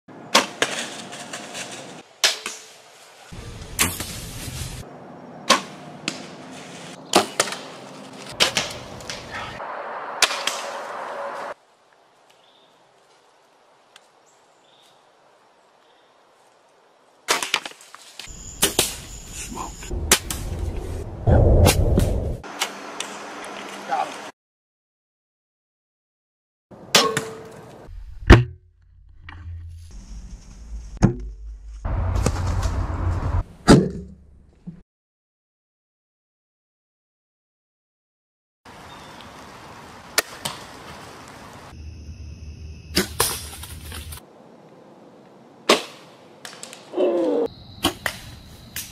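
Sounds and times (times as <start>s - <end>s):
bowstring release with arrow striking: 3.8s - 4.2s.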